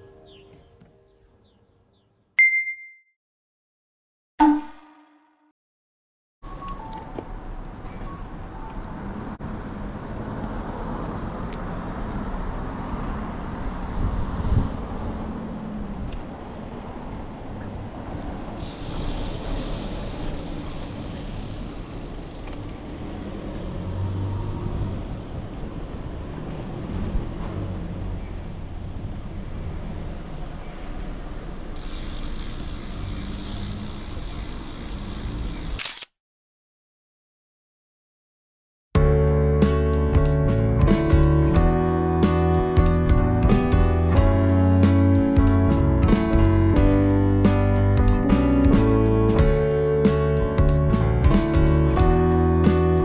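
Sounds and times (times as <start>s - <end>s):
traffic rumble: 6.5s - 35.8s, 39.1s - 53.0s
minibus driving past: 17.0s - 35.8s.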